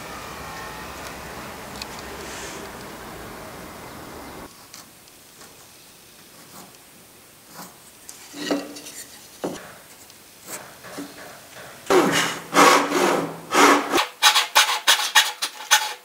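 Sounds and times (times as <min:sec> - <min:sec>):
steady noise: 0:00.0 - 0:04.5.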